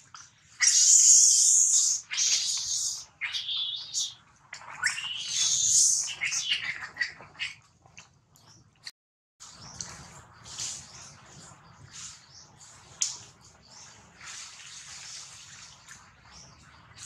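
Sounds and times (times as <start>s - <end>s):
shrill animal calls: 0.6s - 7.2s.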